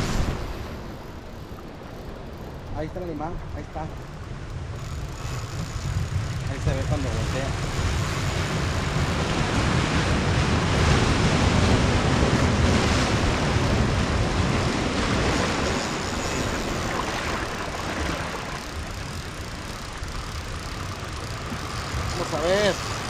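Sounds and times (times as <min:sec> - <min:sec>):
surf breaking on rocky shore: 0:00.0 - 0:01.8, 0:06.4 - 0:23.0
wind on microphone: 0:03.3 - 0:23.0.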